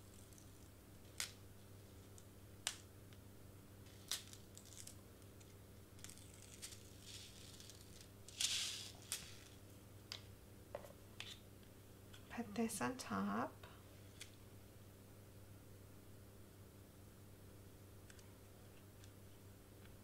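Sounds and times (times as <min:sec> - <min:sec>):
faint steady low hum: 0:00.0 - 0:20.0
crinkly tape peeling: 0:03.8 - 0:09.6.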